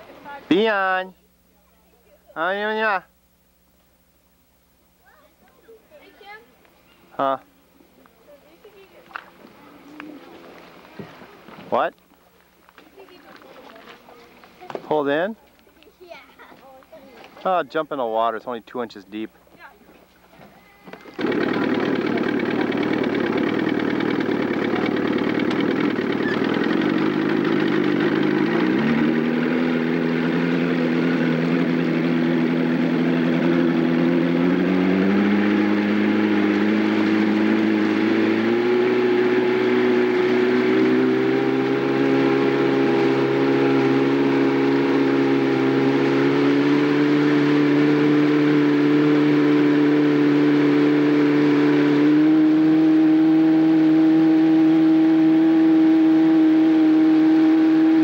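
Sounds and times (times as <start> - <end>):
motorboat engine accelerating: 21.0 - 58.0.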